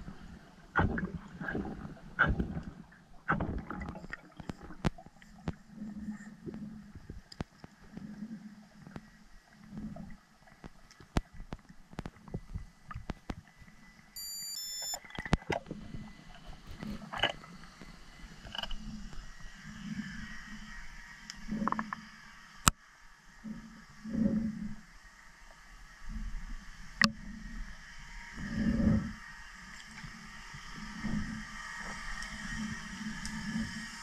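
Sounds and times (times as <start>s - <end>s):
underwater pulses of water: 0.0s - 14.2s, 14.8s - 34.0s
high steady tones: 14.2s - 15.0s.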